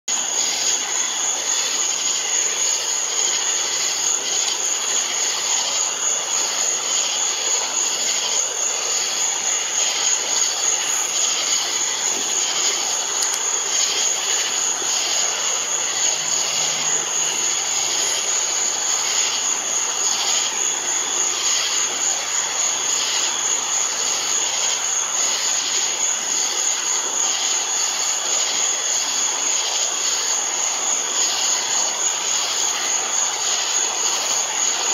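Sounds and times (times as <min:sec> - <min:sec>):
even hiss: 0:00.1 - 0:34.9.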